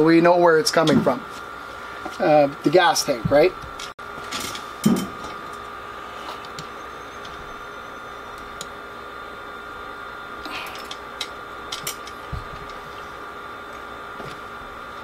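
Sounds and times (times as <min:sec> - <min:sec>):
steady electrical hum: 0:00.0 - 0:15.0.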